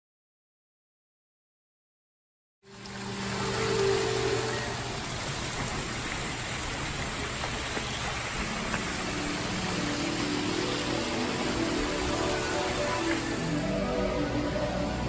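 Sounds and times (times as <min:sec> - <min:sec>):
faint music with sustained tones: 0:02.7 - 0:05.5, 0:08.3 - 0:15.0
small waterfall rushing: 0:02.7 - 0:15.0.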